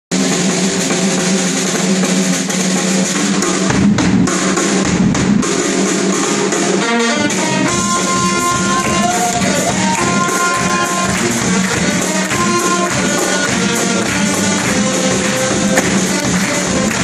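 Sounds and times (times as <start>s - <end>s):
bass drum: 0.1s - 6.5s, 7.3s - 17.0s
snare drum: 0.1s - 17.0s
trumpet: 6.0s - 17.0s
saxophone: 6.5s - 17.0s
held horn note: 6.8s - 17.0s.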